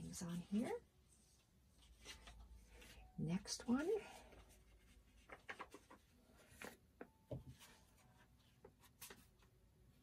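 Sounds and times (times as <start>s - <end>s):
paper and fabric rustling: 0.3s - 6.8s.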